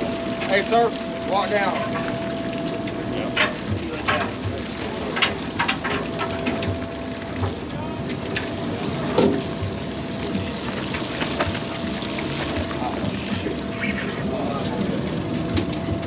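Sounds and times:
boat machinery droning: 0:00.0 - 0:16.0.

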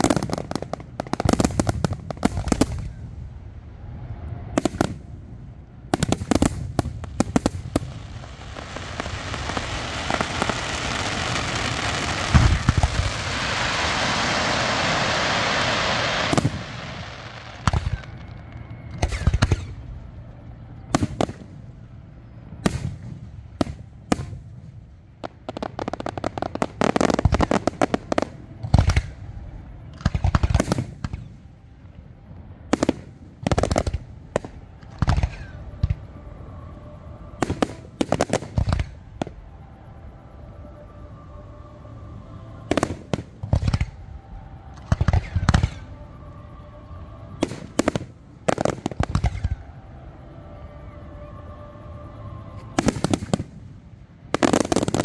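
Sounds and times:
fireworks bangs: 0:00.0 - 0:03.2, 0:04.5 - 0:05.3, 0:05.9 - 0:19.9, 0:44.8 - 0:46.0, 0:47.4 - 0:49.6
rapid fireworks crackling: 0:00.0 - 0:36.2, 0:36.8 - 0:39.5, 0:42.6 - 0:50.2, 0:52.6 - 0:55.0.

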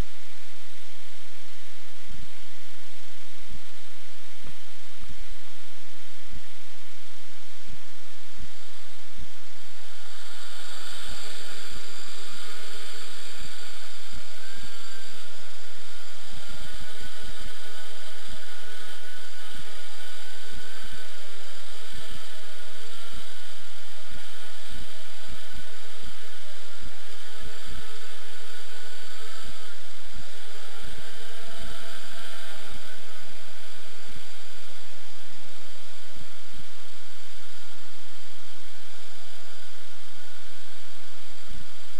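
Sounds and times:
drone motors whining: 0:09.6 - 0:41.9.

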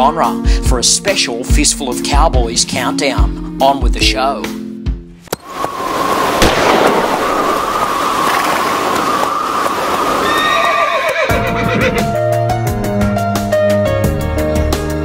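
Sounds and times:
horse whinnying: 0:10.1 - 0:12.2.

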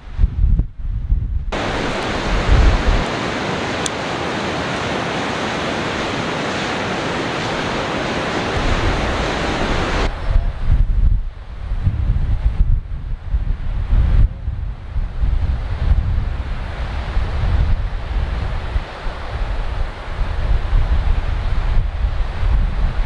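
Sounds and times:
wind buffeting microphone: 0:00.0 - 0:23.0
loud steady rushing noise: 0:01.5 - 0:12.6.

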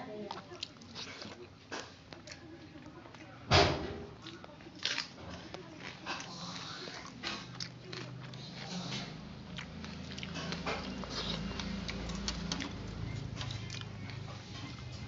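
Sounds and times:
chewing: 0:00.0 - 0:15.0
fingers squishing food on metal plate: 0:04.1 - 0:15.0.

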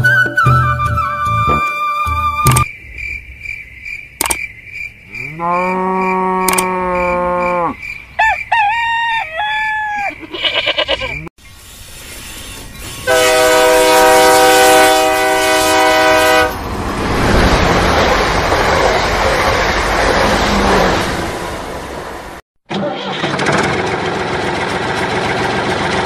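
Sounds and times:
cow mooing: 0:05.1 - 0:07.8
rooster crowing: 0:05.6 - 0:11.2
hen clucking: 0:08.2 - 0:11.3
toy train horn: 0:13.0 - 0:16.6.

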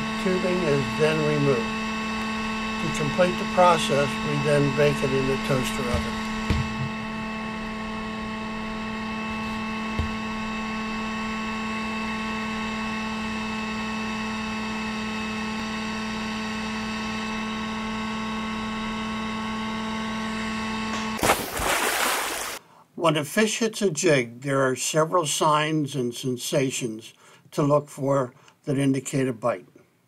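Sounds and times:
heat gun humming: 0:00.0 - 0:13.6
small knock: 0:05.9 - 0:07.0.

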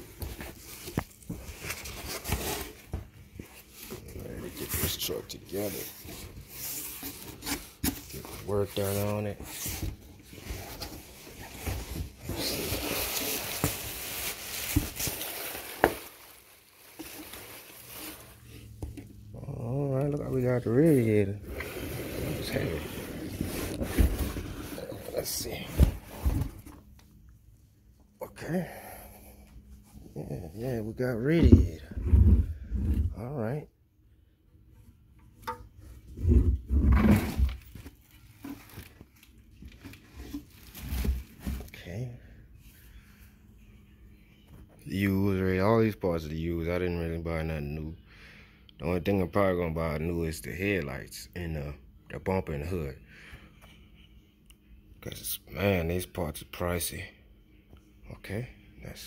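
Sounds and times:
plastic rustling: 0:00.0 - 0:18.9, 0:37.2 - 0:41.8
bubble wrap crinkling: 0:12.2 - 0:18.5.

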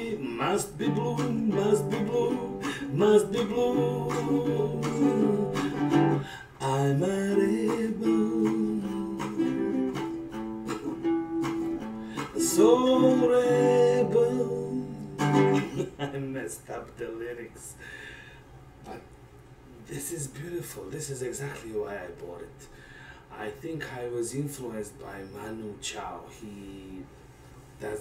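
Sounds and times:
small guitar strummed in chords: 0:00.0 - 0:06.4, 0:07.4 - 0:15.8
man singing: 0:00.0 - 0:10.0, 0:12.2 - 0:15.8.

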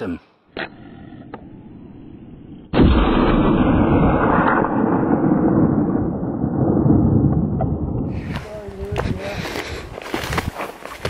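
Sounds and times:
rifle shot: 0:02.7 - 0:07.8.

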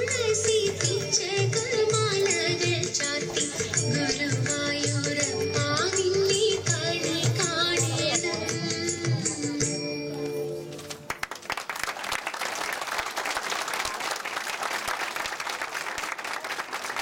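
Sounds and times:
audience applauding: 0:11.1 - 0:17.0.

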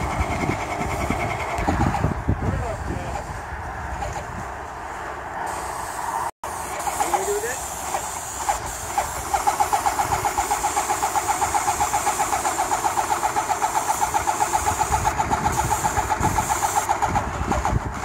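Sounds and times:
paint sprayer pump chattering: 0:00.0 - 0:02.2, 0:06.5 - 0:18.0.

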